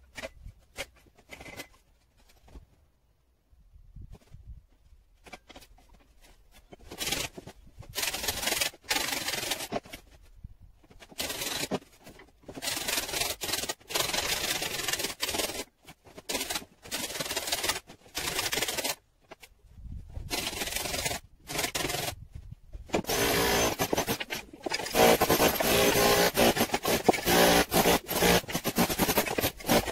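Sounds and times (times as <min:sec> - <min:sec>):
power tool cutting brickwork: 0:20.3 - 0:22.2, 0:23.0 - 0:29.9.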